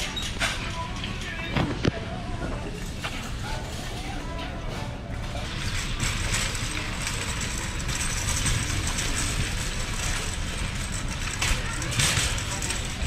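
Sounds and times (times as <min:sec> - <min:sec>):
shopping cart rattling: 0:02.6 - 0:13.0
wheels rolling on concrete: 0:02.8 - 0:13.0.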